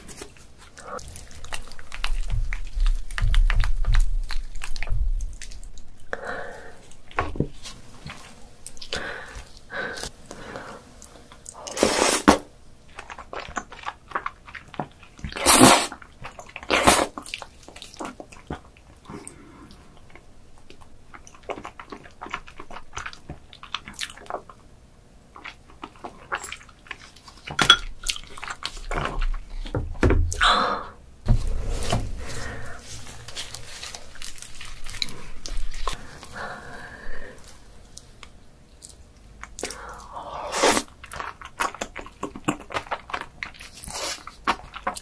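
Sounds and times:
wet chewing and smacking: 0:00.0 - 0:06.2, 0:06.8 - 0:11.7, 0:12.8 - 0:30.4, 0:32.8 - 0:36.4, 0:37.4 - 0:45.0
loud slurps: 0:15.3 - 0:16.0.

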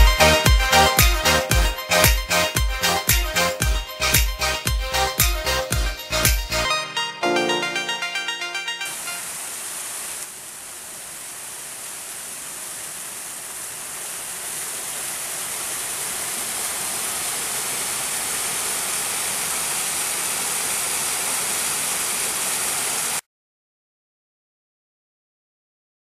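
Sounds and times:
waterfall pouring over rocks: 0:08.8 - 0:23.2.

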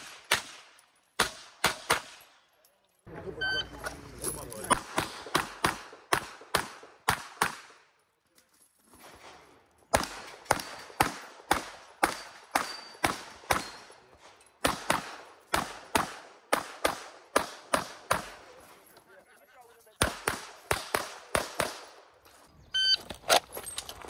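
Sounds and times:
pistol gunshots: 0:00.0 - 0:02.4, 0:04.7 - 0:07.9, 0:09.9 - 0:13.9, 0:14.6 - 0:18.5, 0:20.0 - 0:22.0.

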